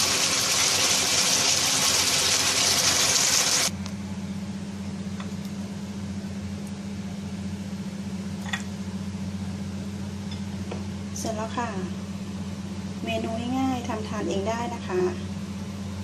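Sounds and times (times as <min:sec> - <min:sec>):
wok hissing on a stove: 0:00.0 - 0:03.7
steady low hum: 0:03.7 - 0:16.0.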